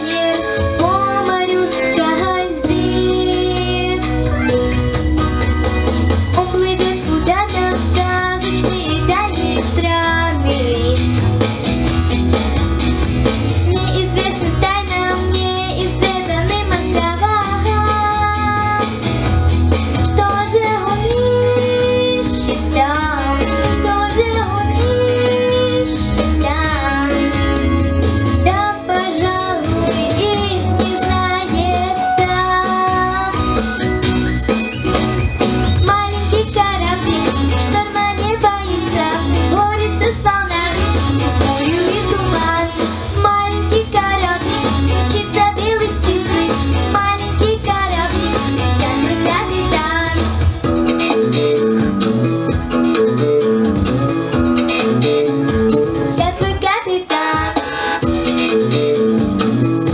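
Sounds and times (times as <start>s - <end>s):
girl singing into microphone: 0.0s - 4.8s, 6.4s - 11.2s, 13.6s - 19.0s, 20.0s - 27.5s, 28.4s - 33.8s, 35.8s - 50.5s, 56.2s - 57.8s
backing track with bass line: 0.0s - 59.9s.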